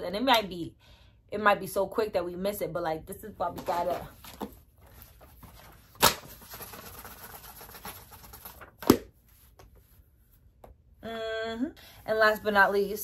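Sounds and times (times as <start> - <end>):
paper rustling: 3.5 - 10.0
notebook smacking: 3.6 - 9.2.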